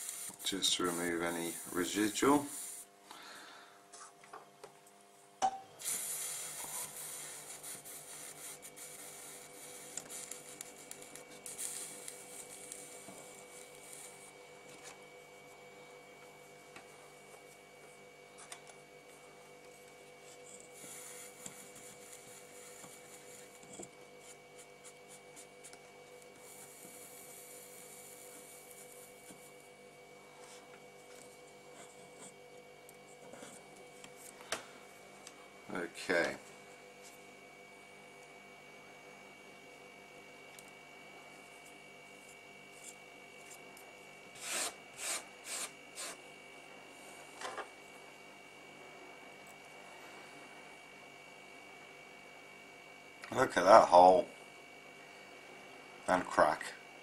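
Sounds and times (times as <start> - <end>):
cotton swab scrubbing circuit board: 0.0 - 2.9, 5.9 - 14.3, 20.2 - 23.6
faint electrical hum: 0.0 - 57.0.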